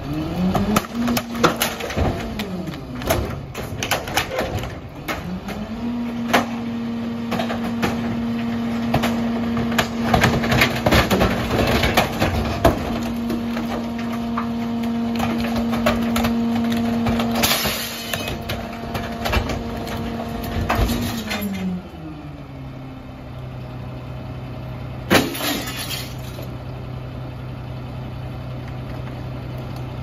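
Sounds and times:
garbage truck engine idling: 0.3s - 30.0s
junk being crushed: 0.4s - 21.8s, 25.1s - 26.5s.

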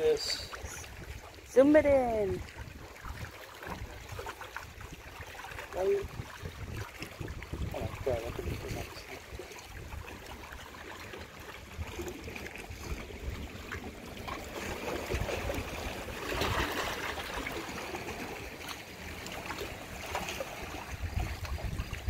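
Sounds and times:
small waves lapping on rocks: 0.0s - 22.0s.

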